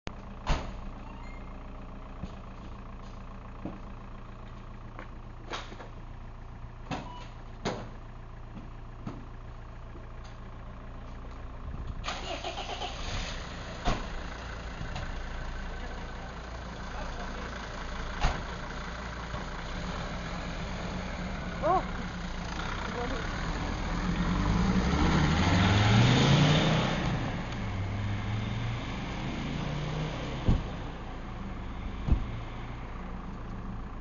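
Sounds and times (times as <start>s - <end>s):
van engine running: 0.1s - 34.0s
sharp knocks and thumps: 32.0s - 32.3s.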